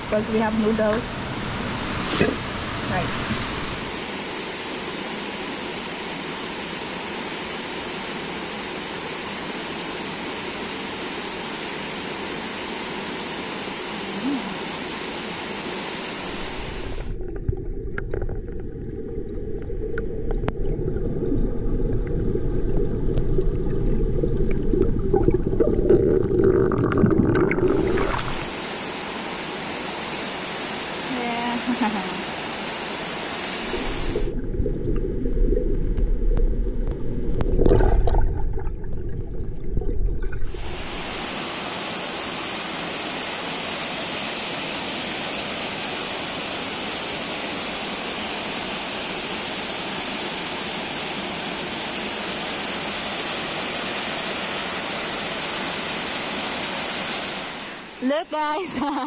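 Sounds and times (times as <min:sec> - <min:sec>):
waterfall rushing: 0:01.3 - 0:17.2, 0:27.4 - 0:34.3, 0:40.5 - 0:58.1
muffled underwater churn: 0:13.6 - 0:29.0, 0:31.1 - 0:42.2.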